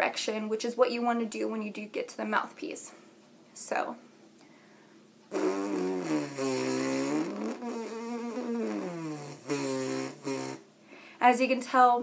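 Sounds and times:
lip buzzing tone: 5.3s - 10.7s.

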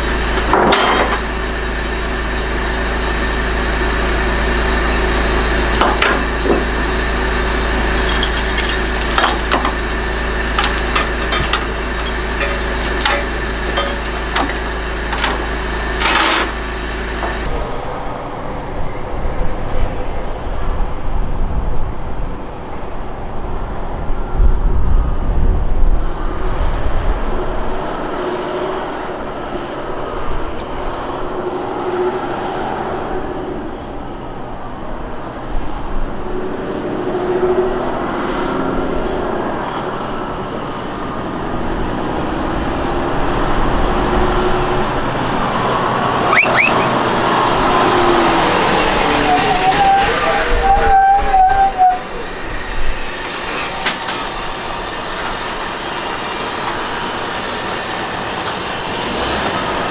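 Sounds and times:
metal clanks and knocks: 0.0s - 1.3s, 5.7s - 6.9s, 7.9s - 17.5s
diesel engine idling: 0.0s - 19.0s, 44.8s - 51.1s
lorry engines and traffic rumble: 0.0s - 59.9s.

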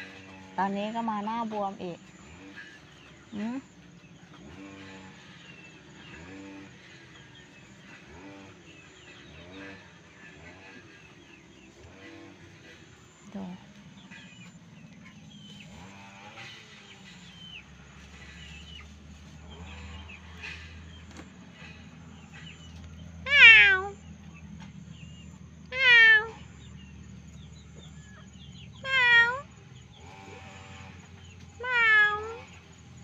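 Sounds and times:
cat meowing: 23.2s - 24.0s, 25.7s - 26.4s, 28.8s - 29.5s, 31.6s - 32.5s.

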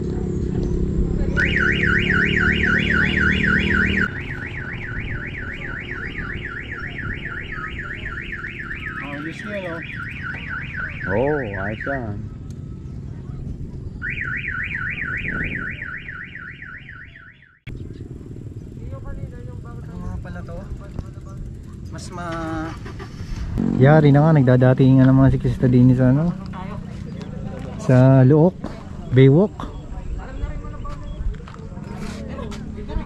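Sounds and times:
electronic warbling siren: 1.2s - 13.0s, 14.0s - 17.8s.

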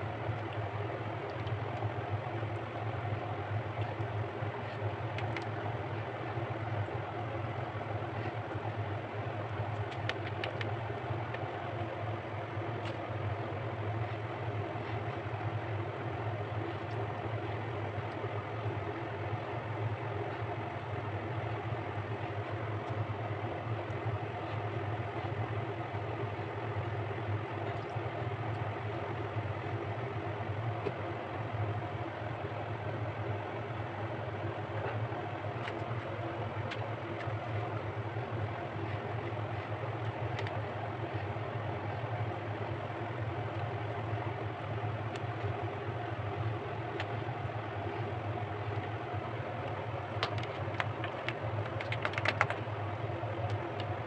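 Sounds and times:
low mechanical hum: 0.0s - 54.0s
faint clicks: 49.7s - 52.6s.

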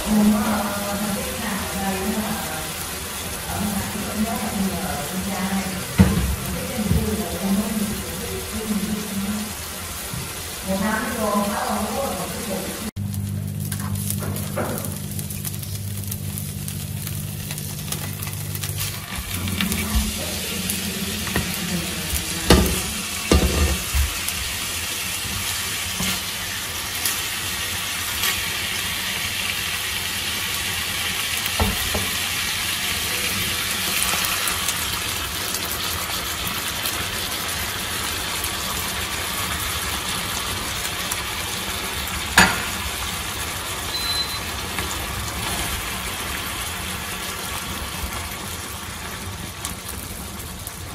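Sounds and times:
fish sizzling in hot oil: 0.0s - 50.9s
utensil knocking against pan: 22.5s - 23.9s.

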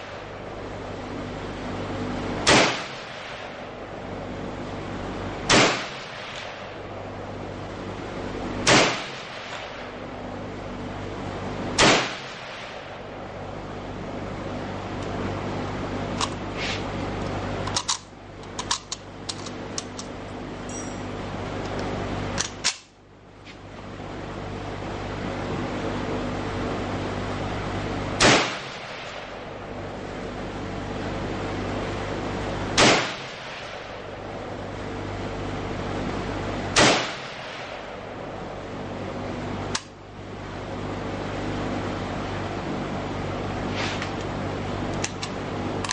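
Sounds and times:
rifle shots: 2.4s - 3.6s, 5.5s - 6.7s, 8.6s - 9.9s, 11.8s - 12.9s, 28.2s - 29.4s, 32.8s - 34.0s, 36.8s - 37.8s
rifle rounds clicking into magazine: 17.7s - 20.1s.

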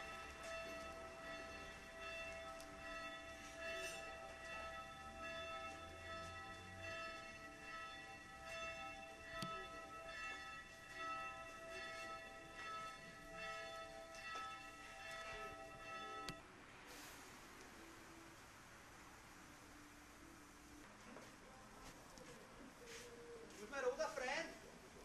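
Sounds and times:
church bells ringing: 0.0s - 16.4s.

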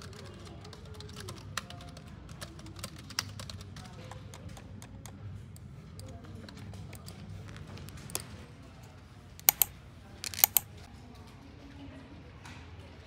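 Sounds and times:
keyboard typing clicks: 9.4s - 9.7s, 10.3s - 10.6s.

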